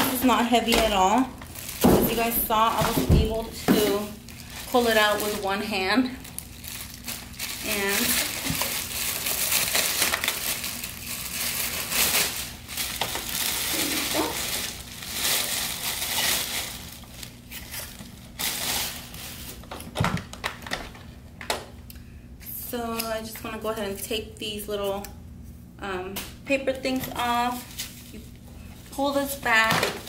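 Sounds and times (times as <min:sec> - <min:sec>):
plastic bag crinkling: 0:00.0 - 0:21.0.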